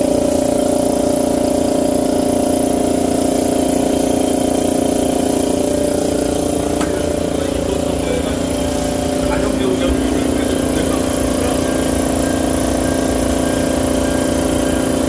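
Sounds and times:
machine hum: 0.0s - 15.0s
pitched drone: 3.6s - 15.0s.

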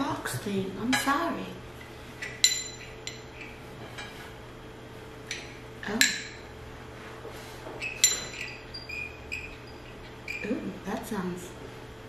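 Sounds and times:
metal utensils clinking on plate: 7.8s - 10.0s.

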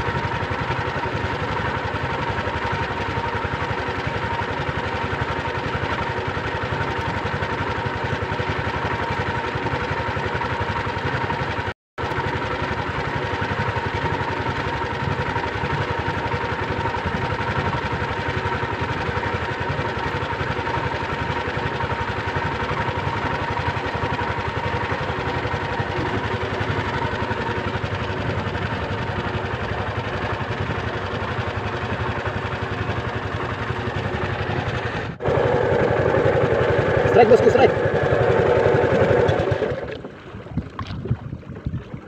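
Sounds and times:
boat engine humming: 0.0s - 42.0s.

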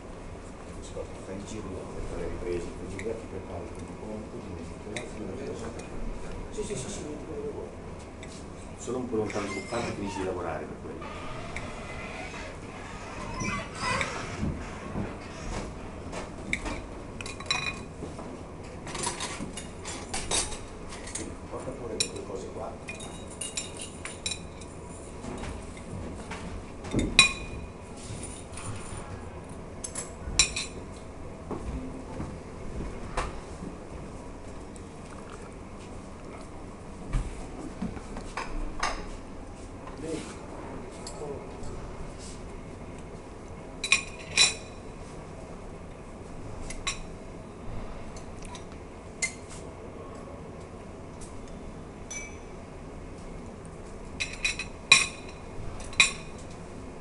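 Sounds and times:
metal utensils clinking on glass: 52.1s - 52.4s.

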